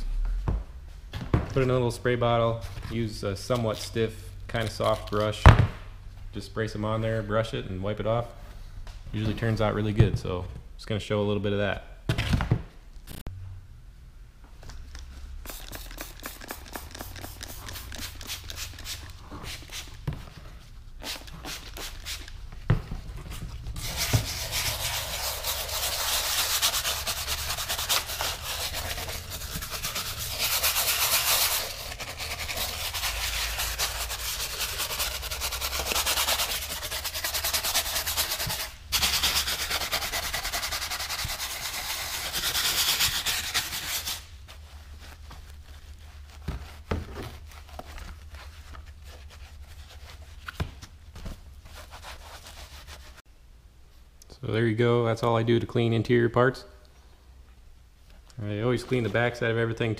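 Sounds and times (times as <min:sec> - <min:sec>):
scrub brush scrubbing plastic: 0:15.5 - 0:20.0, 0:23.8 - 0:46.8.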